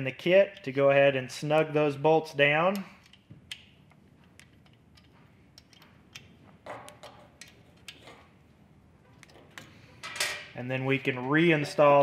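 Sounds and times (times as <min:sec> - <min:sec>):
small metallic clicks: 0:02.7 - 0:08.2.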